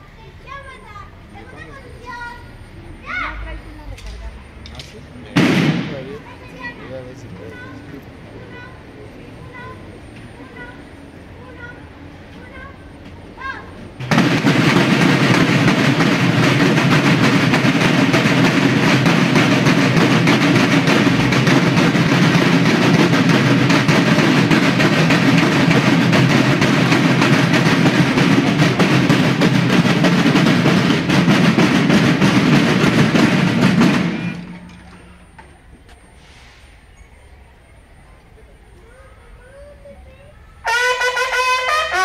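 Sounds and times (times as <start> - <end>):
snare drums playing march beat: 3.9 - 6.9, 13.4 - 35.4, 40.7 - 42.0.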